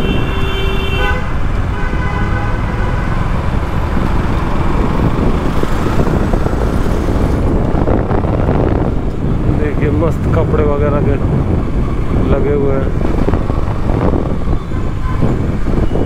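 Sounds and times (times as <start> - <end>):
vehicle horns honking: 0.0 - 3.4
wind rumble: 0.0 - 16.0
motorcycle engine: 1.2 - 9.0.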